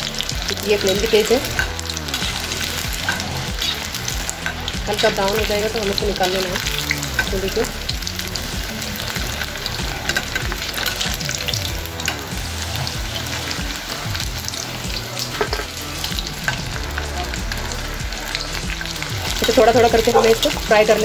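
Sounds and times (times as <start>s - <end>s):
hot oil sizzling and crackling: 0.0s - 21.0s.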